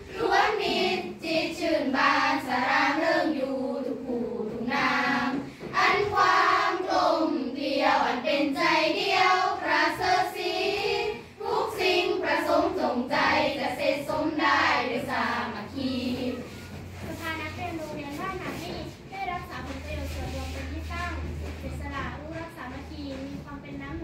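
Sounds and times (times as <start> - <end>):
girls singing together: 0.0 - 17.2.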